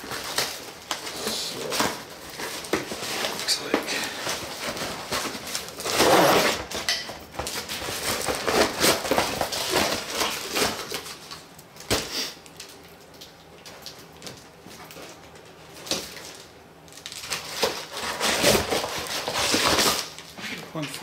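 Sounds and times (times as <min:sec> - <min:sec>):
cardboard and packing tape tearing: 0:00.0 - 0:12.7, 0:15.8 - 0:20.4.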